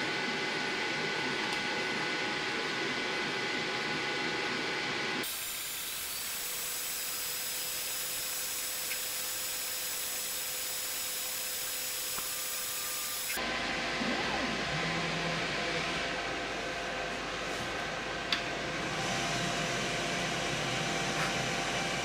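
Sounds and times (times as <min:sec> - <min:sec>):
laser engraver humming: 0:00.2 - 0:16.7
sped-up machine hiss: 0:05.2 - 0:13.4.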